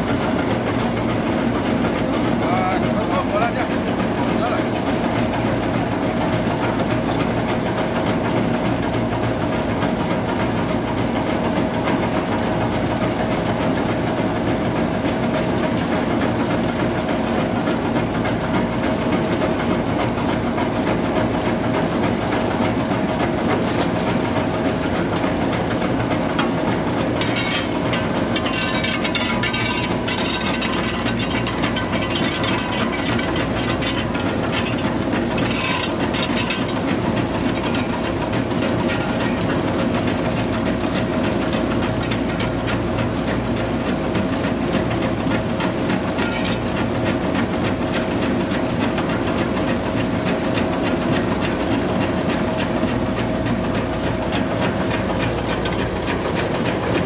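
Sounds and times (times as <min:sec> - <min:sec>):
machine hum: 0:16.2 - 0:49.2
crackling clatter: 0:24.8 - 0:42.8, 0:46.0 - 0:46.7.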